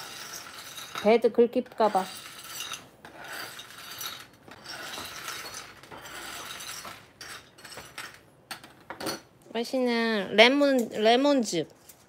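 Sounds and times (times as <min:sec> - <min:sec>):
metal blades scraping plate: 0:00.0 - 0:08.2.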